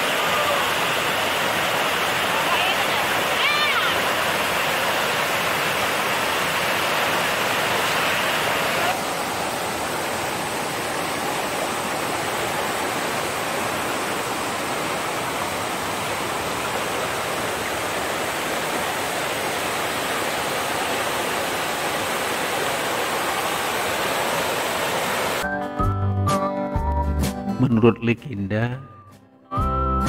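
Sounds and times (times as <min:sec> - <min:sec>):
waterfall and stream rushing: 0:00.0 - 0:25.5
music: 0:25.4 - 0:30.0.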